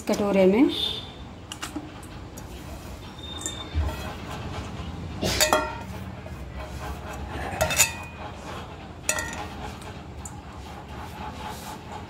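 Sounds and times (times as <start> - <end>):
metal bowl and pan clinking: 5.2 - 6.0, 7.6 - 8.2, 9.0 - 9.6.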